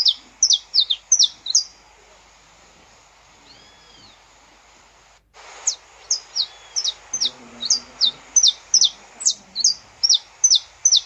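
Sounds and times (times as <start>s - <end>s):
finch singing high notes: 5.6s - 11.0s.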